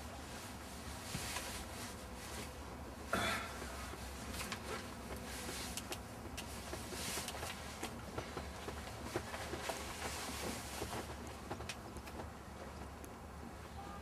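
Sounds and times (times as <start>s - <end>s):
light clicks and taps: 4.4s - 13.2s.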